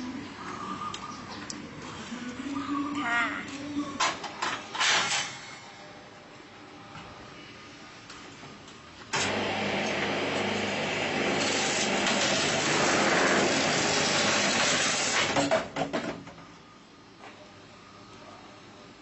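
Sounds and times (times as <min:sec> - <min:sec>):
cutting machine motor and cutting: 0:09.2 - 0:15.4.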